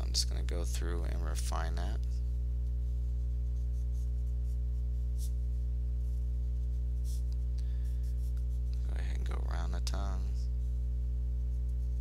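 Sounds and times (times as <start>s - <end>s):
steady low hum: 0.0s - 12.0s
pencil scratching on paper: 2.9s - 8.7s, 10.6s - 12.0s.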